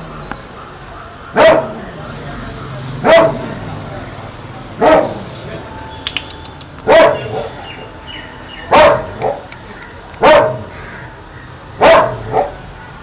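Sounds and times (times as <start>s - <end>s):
dog barking: 1.3s - 1.8s, 3.0s - 3.6s, 4.7s - 5.3s, 6.8s - 7.6s, 8.7s - 9.5s, 10.2s - 10.8s, 11.8s - 12.7s.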